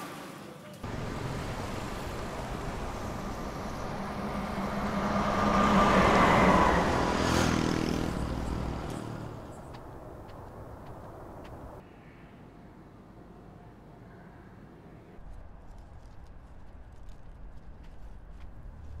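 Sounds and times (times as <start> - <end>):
street traffic: 0.0 - 11.8, 12.7 - 19.0
lorry engine passing: 0.8 - 11.8.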